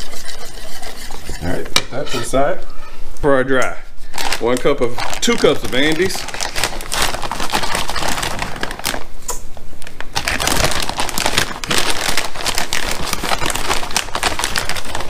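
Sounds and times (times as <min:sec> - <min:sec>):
plastic bag crinkling: 0:04.1 - 0:09.2, 0:09.8 - 0:15.0.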